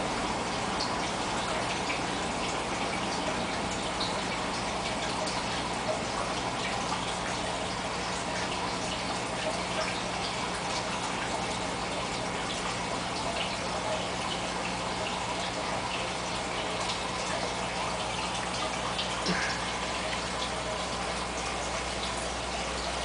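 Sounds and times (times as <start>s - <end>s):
water drips: 0.0s - 23.0s
water splashing into tank: 0.0s - 23.0s
low filter hum: 10.8s - 23.0s.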